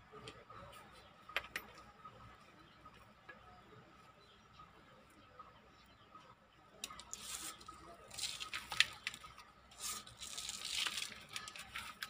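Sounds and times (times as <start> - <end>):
dry soil crumbling into pot: 6.8 - 12.0.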